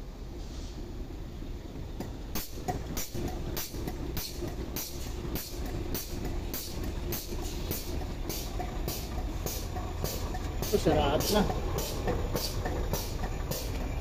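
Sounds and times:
machinery rumbling: 0:01.0 - 0:14.0.

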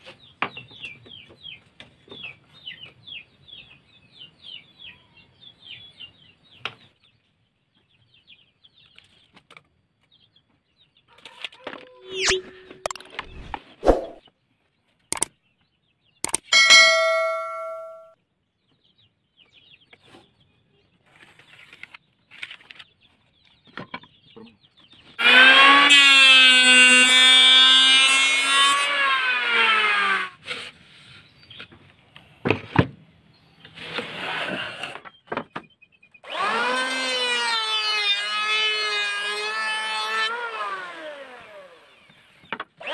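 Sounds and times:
knocks and scrapes: 0:11.3 - 0:14.2
electric hand planer whine: 0:25.2 - 0:30.3, 0:36.3 - 0:42.1.

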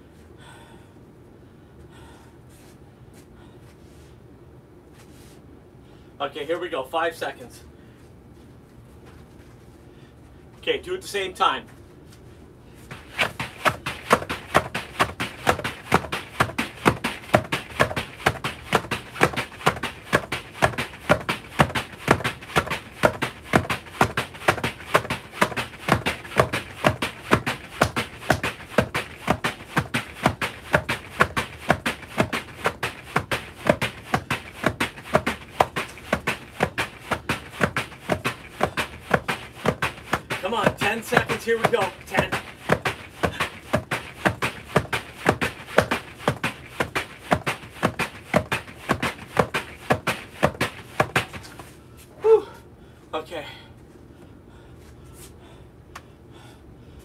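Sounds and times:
battle ropes slapping floor: 0:12.9 - 0:51.7.

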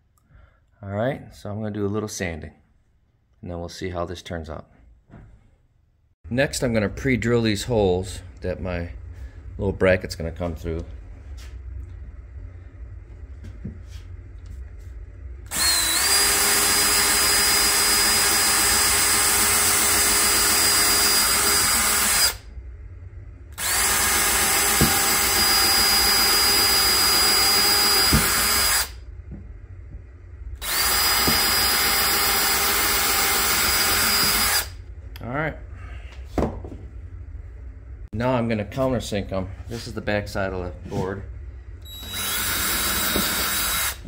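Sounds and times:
cordless drill motor whine: 0:15.5 - 0:22.4, 0:23.6 - 0:29.0, 0:30.6 - 0:34.8, 0:41.8 - 0:44.0.

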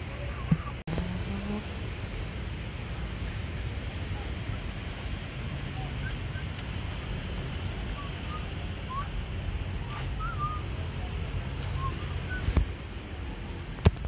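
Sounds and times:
wind rumbling on microphone: 0:00.0 - 0:14.0.

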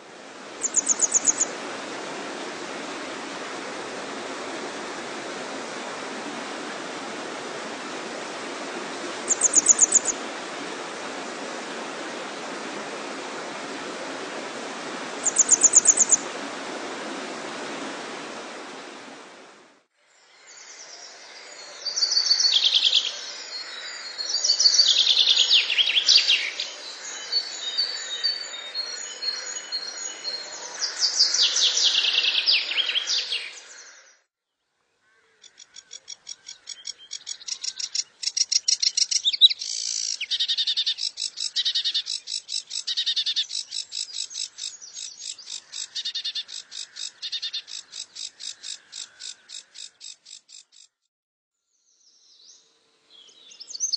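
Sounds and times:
running water rushing: 0:00.0 - 0:19.9
songbirds singing: 0:00.6 - 0:01.5, 0:09.3 - 0:10.2, 0:15.2 - 0:16.2, 0:20.2 - 0:50.9, 0:51.7 - 0:53.9.

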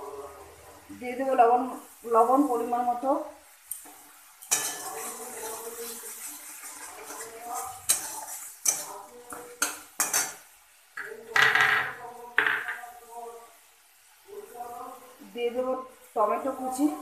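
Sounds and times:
spatula scraping metal pan: 0:04.5 - 0:10.4.

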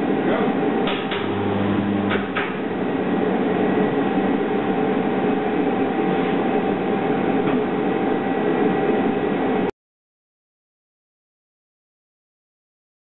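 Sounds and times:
deep electrical hum: 0:00.0 - 0:09.7
steady mechanical noise: 0:00.0 - 0:09.7.

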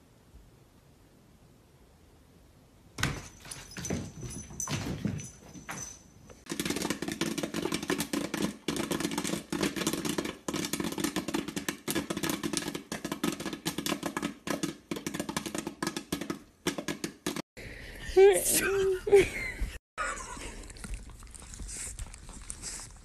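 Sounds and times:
popcorn kernels popping: 0:06.4 - 0:17.4.

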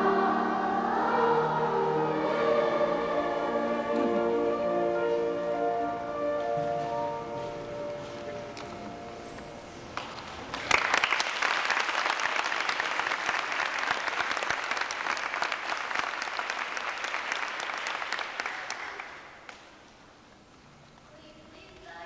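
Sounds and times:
audience applauding: 0:10.0 - 0:19.8.

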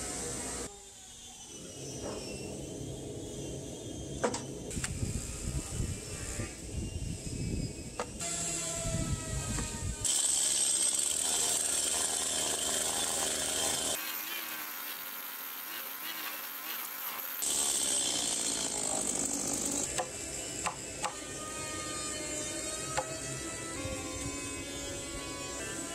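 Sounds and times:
chainsaw cutting timber: 0:08.2 - 0:25.9.

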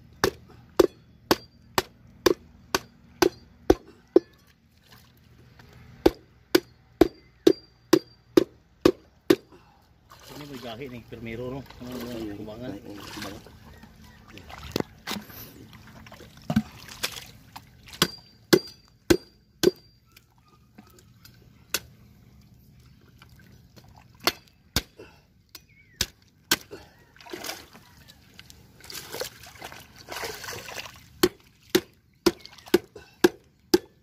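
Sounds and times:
water splashing: 0:10.1 - 0:18.1, 0:27.2 - 0:28.2, 0:28.8 - 0:32.8.

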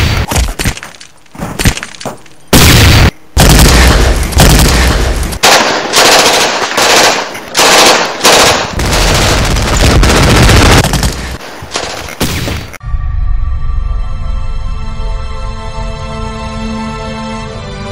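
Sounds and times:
heavy machine-gun fire: 0:02.5 - 0:12.6.

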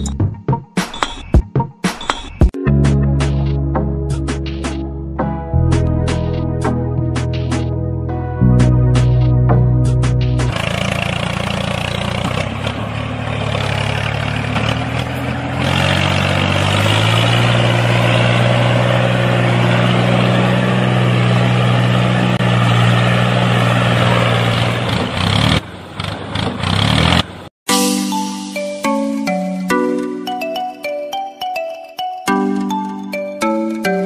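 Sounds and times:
tractor engine running: 0:08.6 - 0:27.5.

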